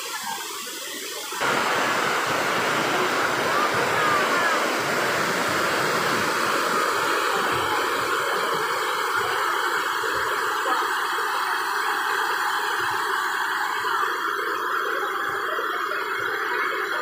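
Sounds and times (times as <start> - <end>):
waterfall roaring: 1.4 - 10.9.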